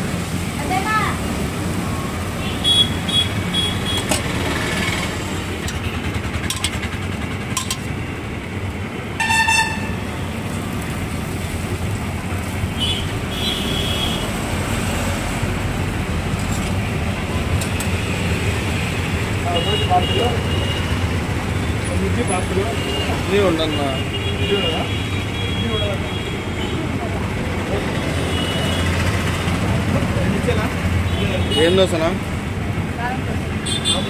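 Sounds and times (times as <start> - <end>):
road traffic passing: 0.0 - 34.0
loud horn blast: 9.2 - 10.0.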